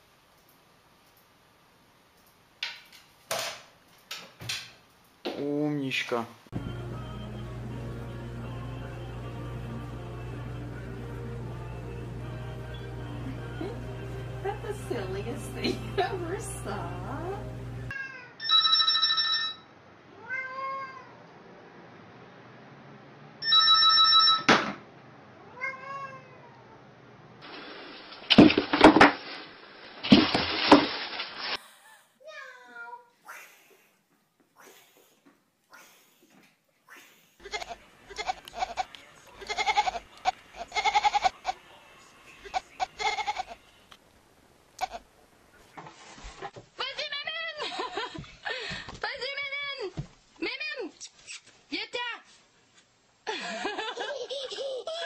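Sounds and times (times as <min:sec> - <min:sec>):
cat meowing: 0:17.9 - 0:18.4, 0:20.2 - 0:21.2, 0:25.4 - 0:26.8
kitten crying: 0:17.9 - 0:18.4, 0:20.2 - 0:21.2, 0:25.4 - 0:26.6
telephone ringing: 0:18.4 - 0:19.7, 0:23.4 - 0:24.5.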